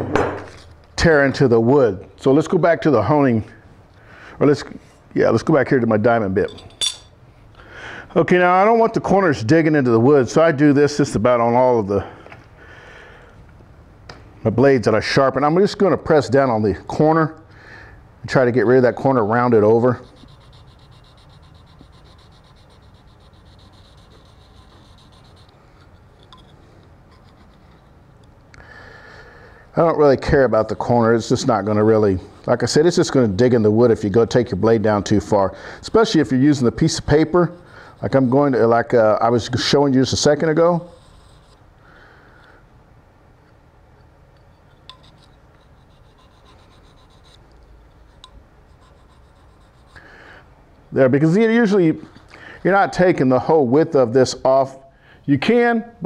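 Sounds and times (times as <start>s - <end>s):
blade rasping on sharpening plate: 20.0s - 28.0s, 40.9s - 41.6s, 44.8s - 50.0s.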